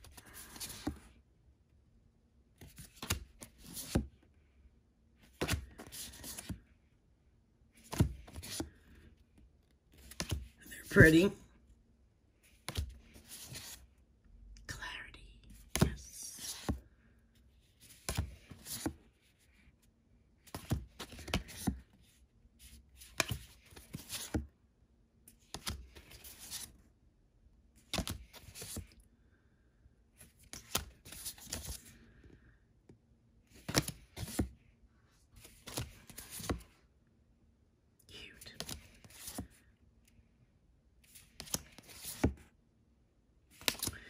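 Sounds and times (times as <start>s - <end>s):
cards sliding and flicking: 0.1s - 1.0s, 2.6s - 4.1s, 5.2s - 6.6s, 7.8s - 8.8s, 9.9s - 11.1s, 12.6s - 13.8s, 15.7s - 16.8s, 17.8s - 19.0s, 20.4s - 21.9s, 23.0s - 24.5s, 25.4s - 26.7s, 27.8s - 28.9s, 30.4s - 31.9s, 33.5s - 34.5s, 35.4s - 36.7s, 38.6s - 39.5s, 41.1s - 42.4s, 43.5s - 44.0s.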